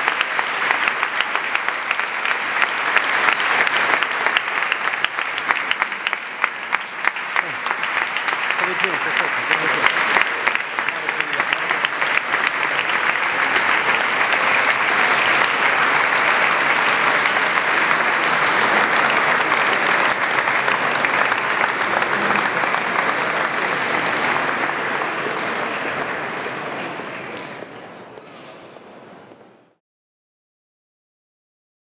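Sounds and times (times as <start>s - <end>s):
audience applauding: 0.0s - 27.8s.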